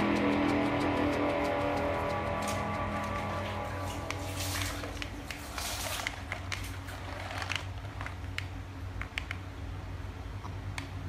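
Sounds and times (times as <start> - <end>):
wheels and plastic parts rattling: 4.2 - 9.5.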